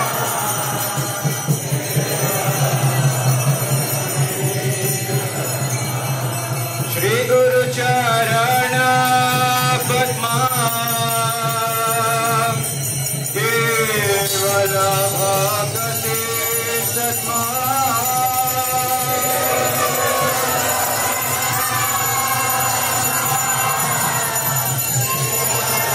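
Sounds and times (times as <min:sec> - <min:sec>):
sliding devotional melody: 0:00.0 - 0:12.7
jingling bells: 0:00.0 - 0:25.9.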